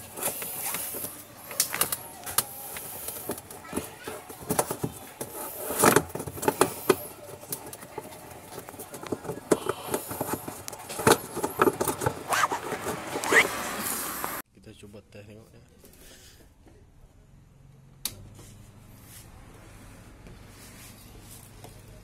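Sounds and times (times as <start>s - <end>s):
plastic parts clicking and knocking: 0.0s - 13.3s.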